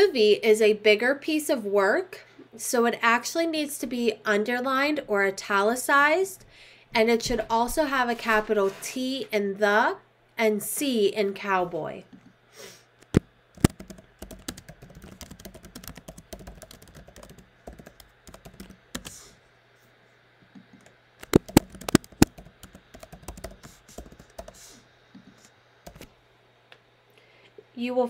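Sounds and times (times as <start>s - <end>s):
keyboard typing: 13.1s - 19.2s, 20.6s - 24.6s, 25.8s - 26.1s.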